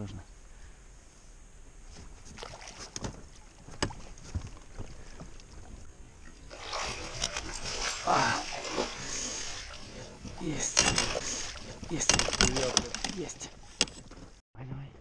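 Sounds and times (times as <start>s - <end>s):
fish thrashing and water splashing: 2.2s - 13.8s.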